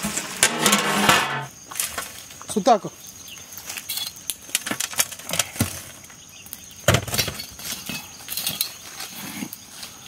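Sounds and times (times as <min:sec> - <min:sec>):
charcoal scraping on metal lid: 0:00.0 - 0:01.5.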